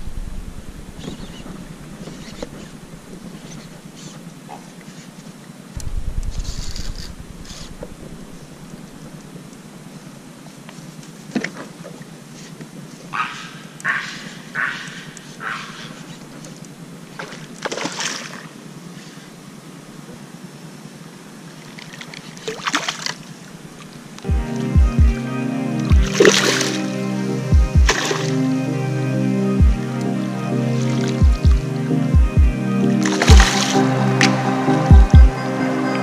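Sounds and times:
steady hiss: 0.0s - 17.7s, 18.4s - 36.0s
brief low rumble: 5.8s - 8.4s.

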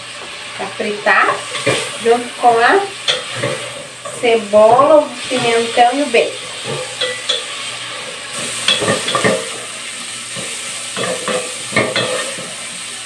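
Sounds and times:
food sizzling in a pot: 0.0s - 13.0s
wooden spoon scraping a pot: 1.1s - 9.6s.

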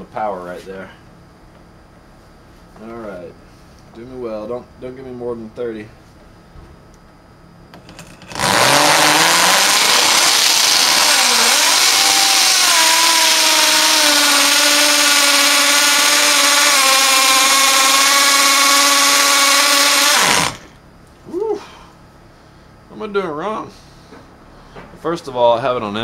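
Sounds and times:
hammer drill boring into wood: 7.8s - 20.8s.

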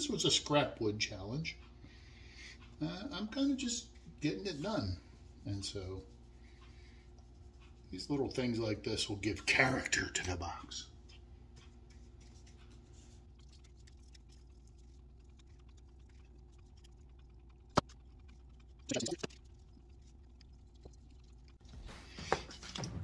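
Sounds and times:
scratchy brush strokes: 2.6s - 9.6s, 11.0s - 17.3s.

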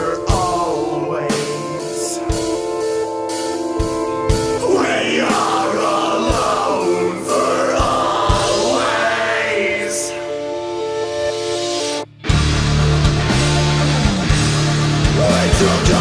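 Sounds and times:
wordless vocal: 0.0s - 3.2s, 4.2s - 11.2s, 15.0s - 16.0s
held guitar chords: 0.0s - 16.0s.

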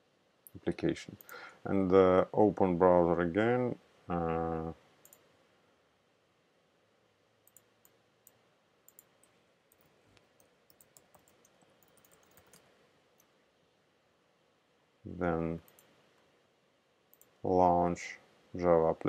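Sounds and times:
keyboard keys clicking: 9.7s - 12.6s.

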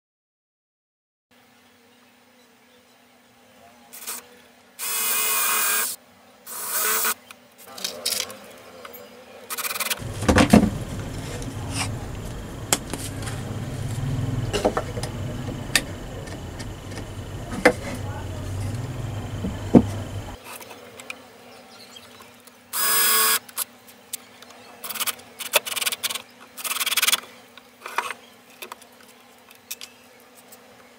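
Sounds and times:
low steady rumble: 10.0s - 20.4s.

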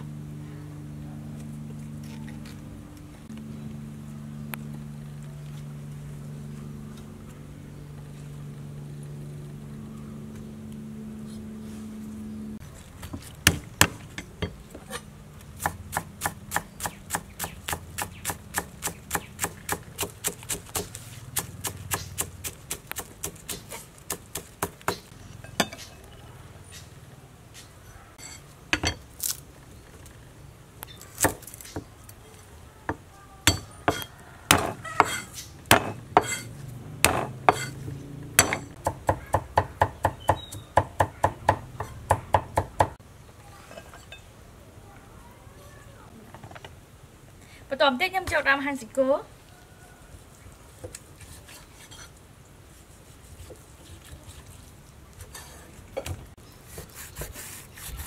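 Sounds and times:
steady low hum: 0.0s - 12.8s
knife chopping on wooden block: 33.5s - 37.7s.

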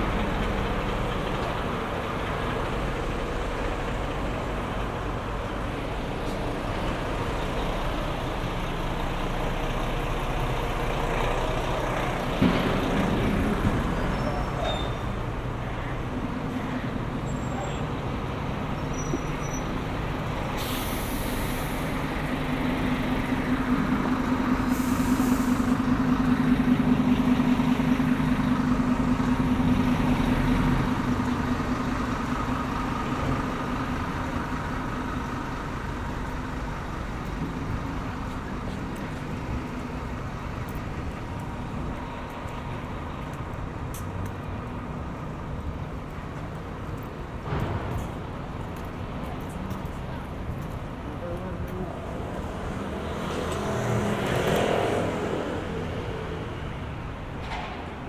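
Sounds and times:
diesel engine running: 0.0s - 54.4s
air brake hisses: 20.6s - 21.9s, 24.6s - 25.8s.

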